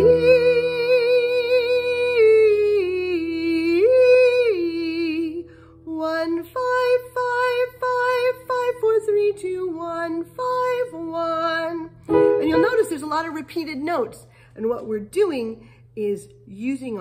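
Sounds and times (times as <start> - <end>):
woman singing vocal exercise: 0.0 - 12.9
faint held accompaniment: 0.0 - 17.0.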